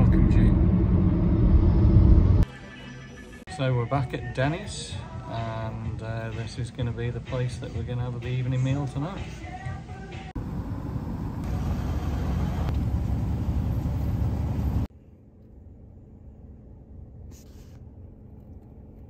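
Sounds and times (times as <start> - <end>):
low hum: 0.0 - 2.5, 10.4 - 19.0
road traffic rumble: 10.4 - 14.9.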